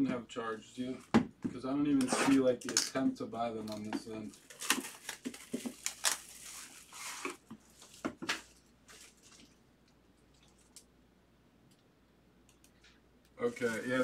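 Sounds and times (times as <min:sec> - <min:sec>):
packaging rustling and crinkling: 0:03.8 - 0:09.6, 0:13.4 - 0:14.0.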